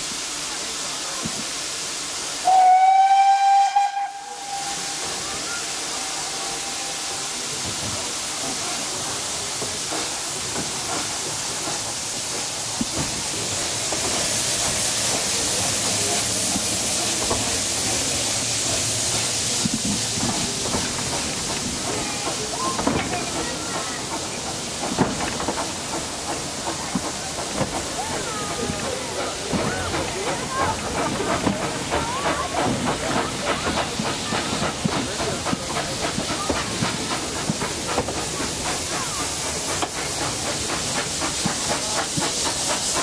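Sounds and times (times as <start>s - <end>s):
hiss: 0.0s - 43.0s
train running noise: 0.0s - 43.0s
steam locomotive whistle: 2.4s - 7.5s.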